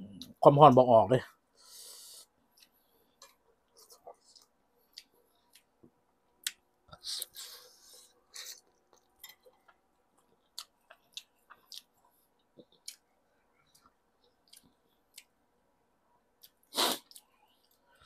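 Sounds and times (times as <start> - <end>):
mouth smacking and chewing: 10.4 - 15.4.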